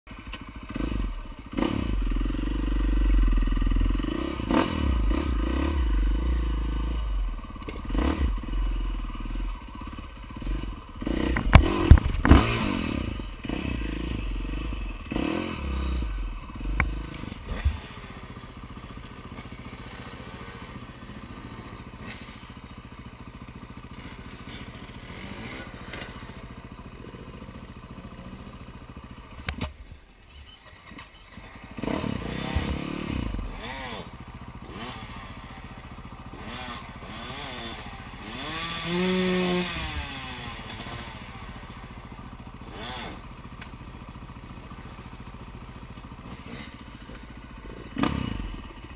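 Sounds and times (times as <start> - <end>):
dirt bike engine running: 0.1 - 48.9.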